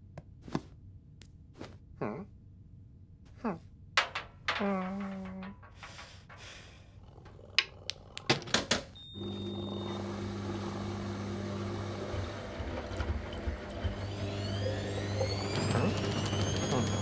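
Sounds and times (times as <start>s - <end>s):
washing machine motor humming: 9.0s - 17.0s.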